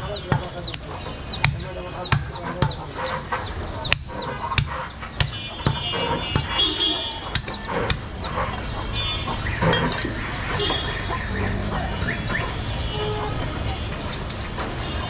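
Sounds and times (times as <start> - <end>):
cleaver chopping meat on wood: 0.0 - 6.6, 7.3 - 8.5.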